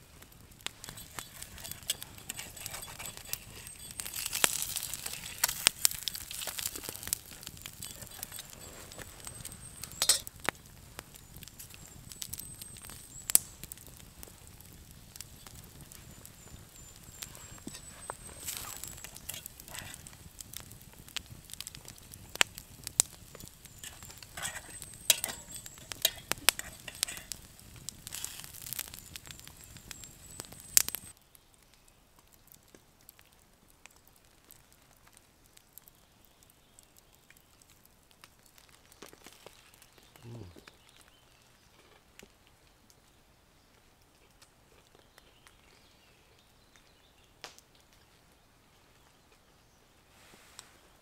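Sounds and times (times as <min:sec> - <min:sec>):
faint forest background: 0:00.0 - 0:51.0
fire popping and crackling: 0:00.0 - 0:51.0
bacon sizzling in a frying pan: 0:00.6 - 0:31.2.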